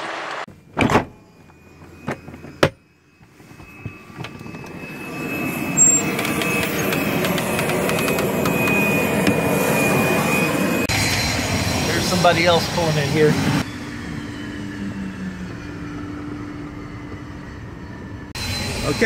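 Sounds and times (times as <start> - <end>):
aircraft door knocks and clunks: 0.8 - 1.1
jet engine running: 1.3 - 19.0.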